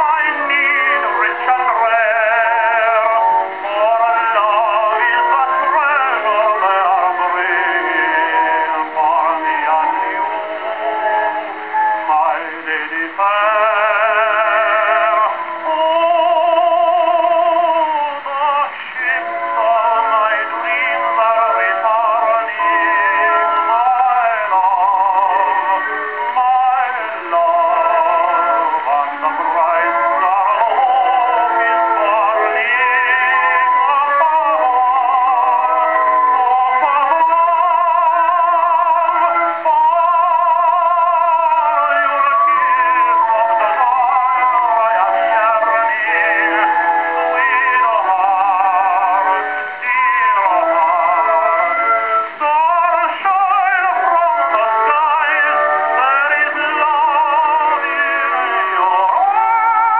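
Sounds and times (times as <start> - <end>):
tenor singing on old phonograph: 0.0 - 59.9.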